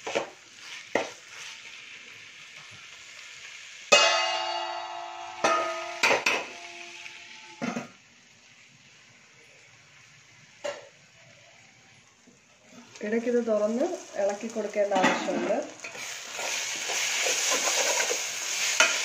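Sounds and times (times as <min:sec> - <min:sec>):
onions sizzling in a pan: 0:00.0 - 0:19.0
metal clang ringing: 0:03.9 - 0:06.7.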